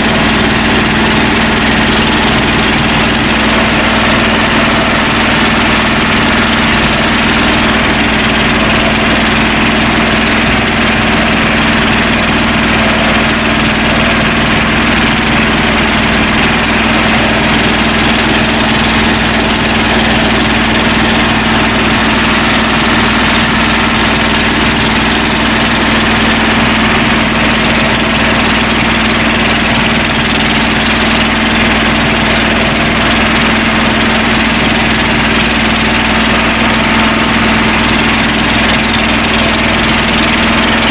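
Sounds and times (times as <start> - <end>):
tractor engine running: 0.0 - 40.9.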